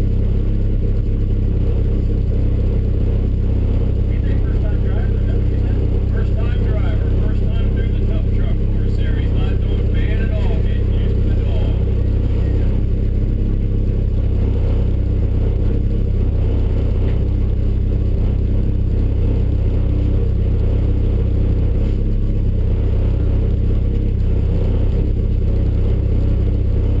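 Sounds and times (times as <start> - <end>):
truck engine idling: 0.0 - 27.0.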